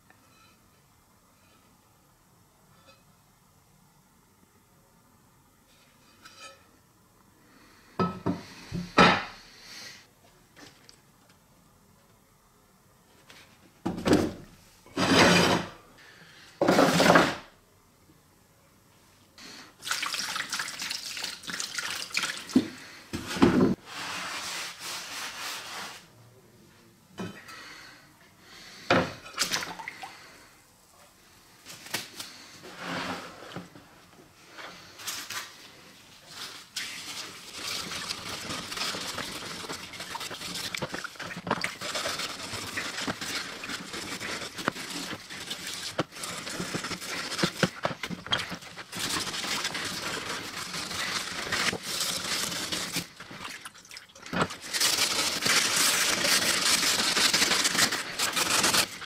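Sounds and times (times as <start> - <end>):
steel wool scrubbing metal: 36.8 - 53.2.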